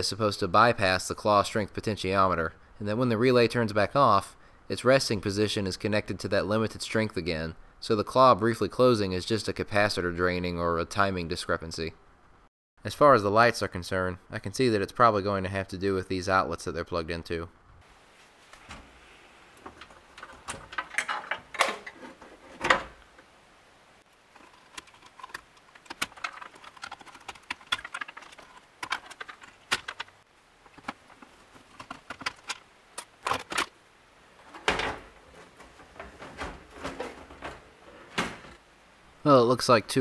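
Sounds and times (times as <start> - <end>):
wires and panel being handled: 18.2 - 23.3, 24.0 - 38.7.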